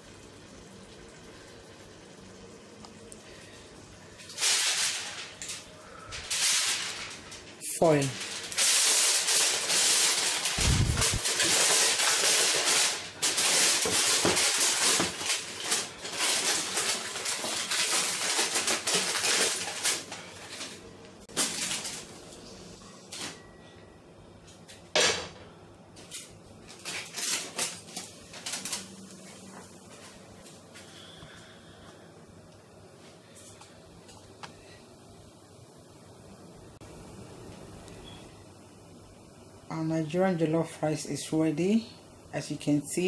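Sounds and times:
aluminium foil crinkling: 4.2 - 22.4, 26.0 - 31.2.

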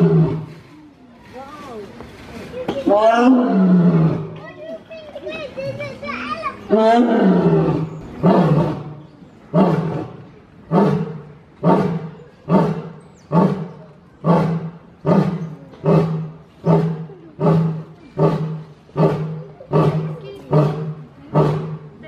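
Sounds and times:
lion roaring: 6.7 - 21.9.

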